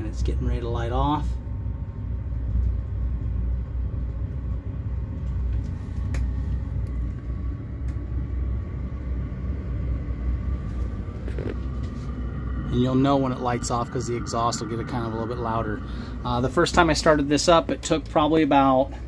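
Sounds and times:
heater blower fan running: 0.0 - 19.0
low rumble: 0.0 - 19.0.

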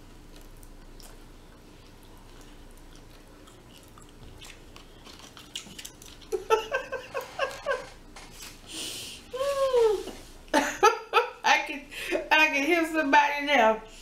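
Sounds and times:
chewing food: 0.0 - 8.6
woman laughing: 6.3 - 8.0, 9.4 - 12.2.

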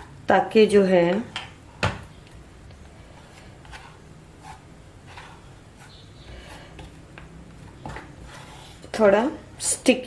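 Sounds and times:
knife scraping on tortilla: 3.2 - 6.9, 8.2 - 8.9.

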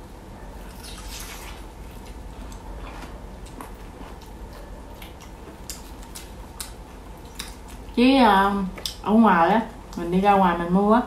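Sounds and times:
person chewing: 0.7 - 8.0.

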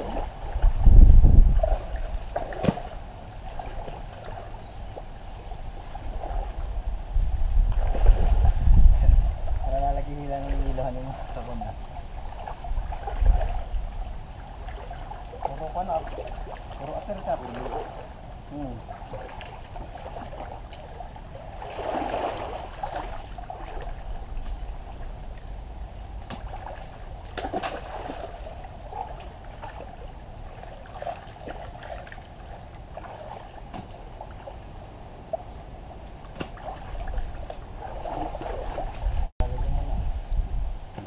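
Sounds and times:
pond water sloshing and splashing: 0.0 - 10.0, 10.6 - 39.6.

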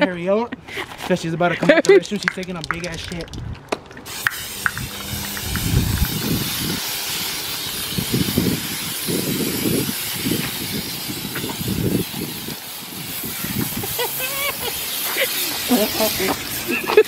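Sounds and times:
spray cans hissing: 0.8 - 17.0
low rumbling: 4.4 - 10.4.

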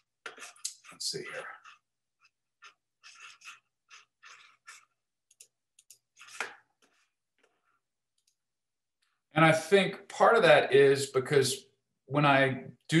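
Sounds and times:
computer clicking and tapping: 5.2 - 6.6.

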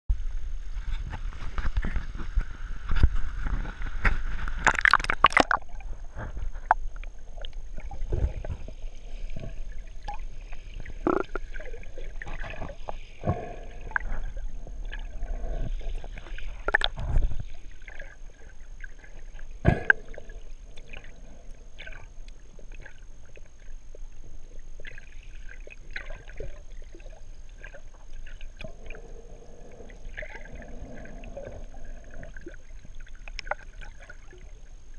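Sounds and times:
low underwater rumble: 0.1 - 34.9
water splashing: 3.4 - 23.4.

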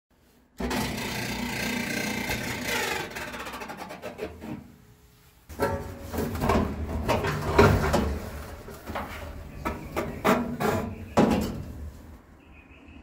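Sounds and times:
dryer drum scraping and squealing: 0.6 - 4.8, 5.5 - 12.2
clothes dryer rumbling: 0.6 - 12.2.

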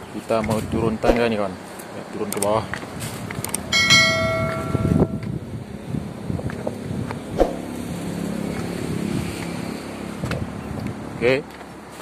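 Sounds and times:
ringing chime: 3.8 - 5.3.

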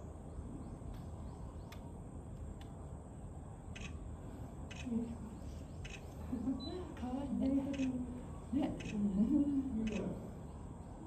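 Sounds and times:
background noise of visitors: 0.0 - 11.0
faint soft clicks: 1.7 - 2.8.

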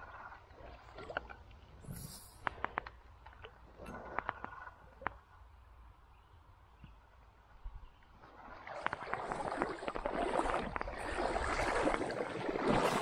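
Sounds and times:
water sloshing and splashing: 0.0 - 5.4, 8.1 - 13.0.

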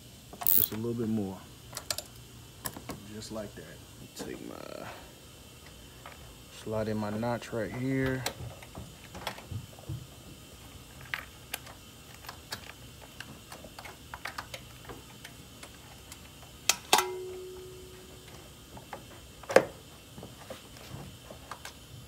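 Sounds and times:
metallic ring: 17.0 - 18.2.

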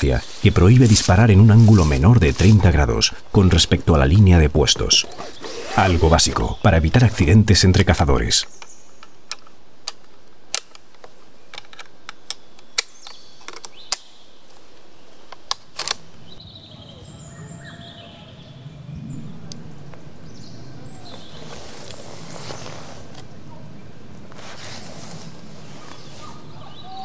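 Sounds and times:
forest background: 0.0 - 27.0
rifle action metallic clicks: 8.5 - 14.1, 15.3 - 16.2
faint bird calls: 16.2 - 27.0.

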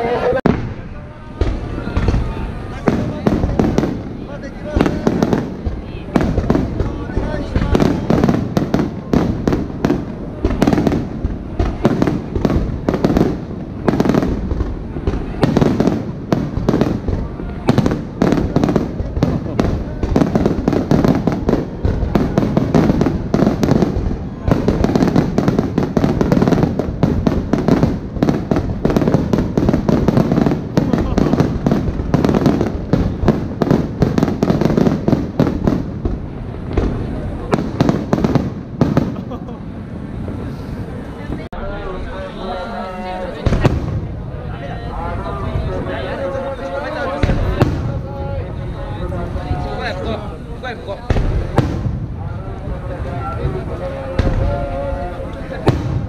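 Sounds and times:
fireworks bursting: 0.0 - 56.0.

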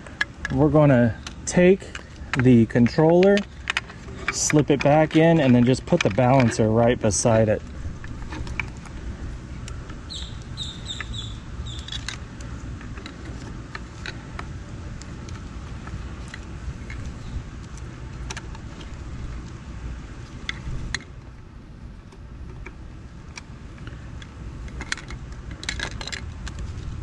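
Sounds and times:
steady low rumble: 0.0 - 27.0
plastic clicks and handling noise: 1.2 - 9.0, 9.6 - 19.6, 22.1 - 26.9
bird chirping: 10.1 - 12.1.

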